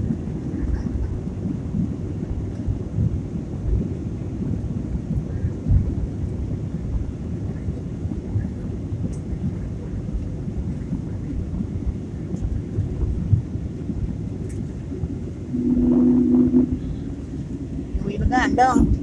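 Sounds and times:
airliner cabin rumble: 0.0s - 19.0s
two-pitched tone: 15.5s - 17.2s.

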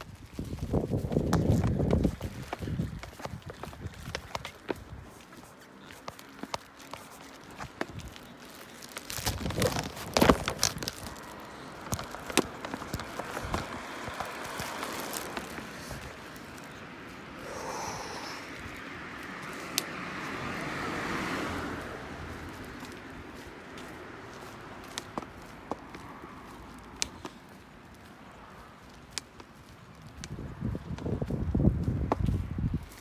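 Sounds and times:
footsteps on pavement: 0.0s - 33.0s
car passing by: 11.0s - 28.9s.

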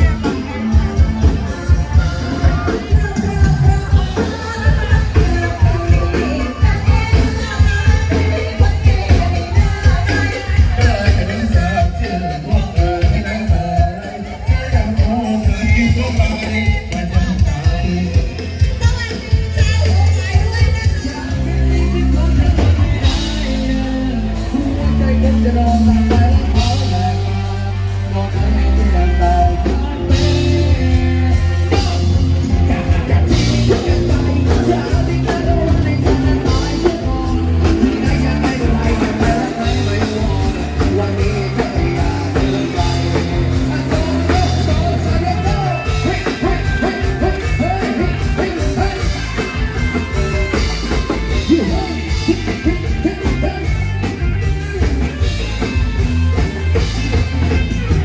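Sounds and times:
band music with singing: 0.0s - 58.0s
drums: 0.0s - 58.0s
heavy bass line: 0.0s - 58.0s.

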